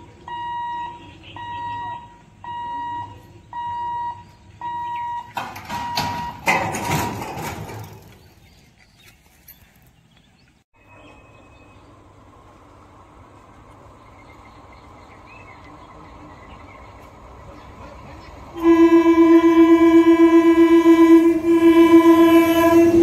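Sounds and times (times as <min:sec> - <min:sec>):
level-crossing warning buzzer beeping: 0:00.0 - 0:06.6, 0:18.6 - 0:23.0
barrier rattling clatter: 0:05.3 - 0:09.8.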